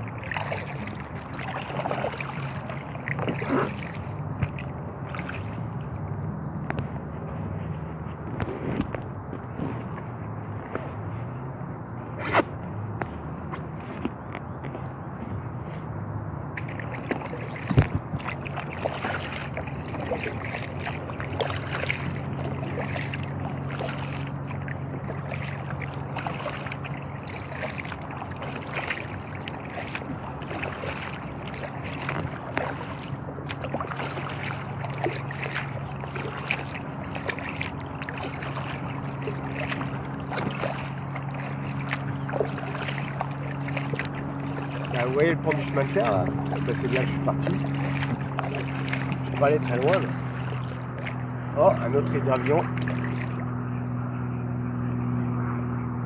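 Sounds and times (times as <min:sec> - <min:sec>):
paddle strokes splashing water: 0:00.0 - 0:53.9
steady low hum: 0:00.0 - 0:56.0.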